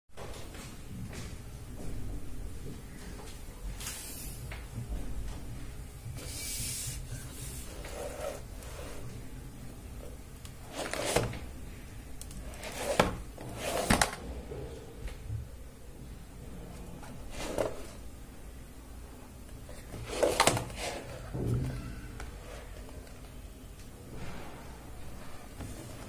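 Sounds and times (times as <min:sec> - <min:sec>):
faint low hum: 0:00.2 - 0:26.0
cardboard box scraping on table: 0:06.8 - 0:09.0, 0:10.7 - 0:11.4.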